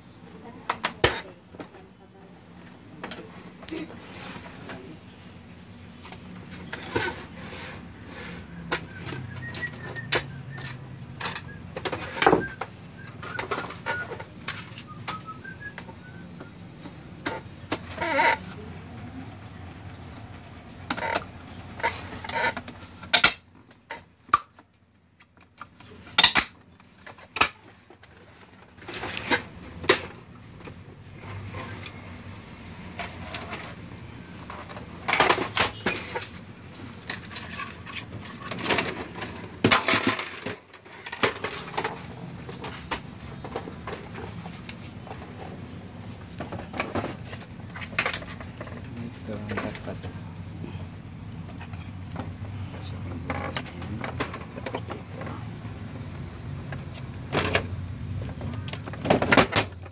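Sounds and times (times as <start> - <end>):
plastic parts clicking and clattering: 8.6 - 15.3, 20.4 - 32.0, 32.8 - 50.2, 51.5 - 55.6, 56.6 - 59.9.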